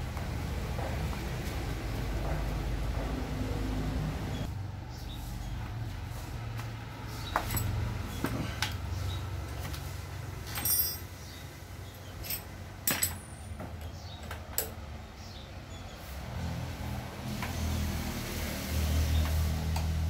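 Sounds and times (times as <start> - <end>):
metallic clicks of tools and parts: 12.2 - 13.5, 14.2 - 14.8.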